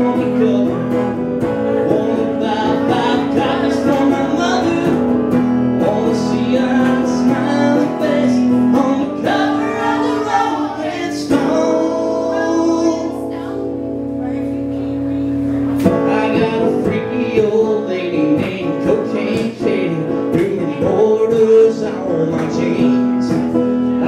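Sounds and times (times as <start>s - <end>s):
acoustic guitar strumming: 0.0s - 24.0s
man and woman singing: 1.7s - 5.0s, 5.8s - 13.4s, 15.8s - 23.6s.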